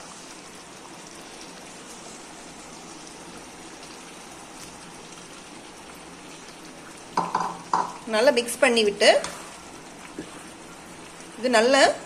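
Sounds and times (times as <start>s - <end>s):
gravy boiling hiss: 0.0s - 12.0s.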